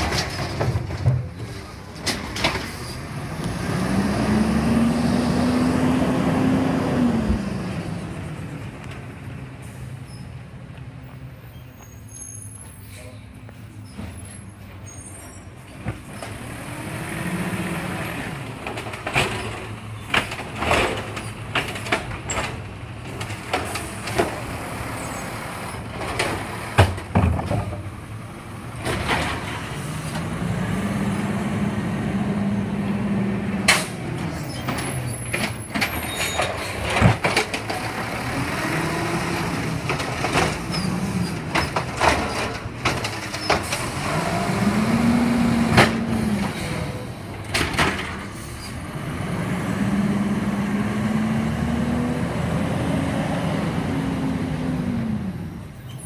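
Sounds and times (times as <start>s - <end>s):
clanks and bangs of carts dumped: 0.0s - 3.2s, 18.0s - 28.1s, 28.7s - 30.3s, 33.6s - 48.8s
garbage truck engine revving: 2.6s - 8.1s, 16.1s - 22.7s, 28.2s - 55.5s.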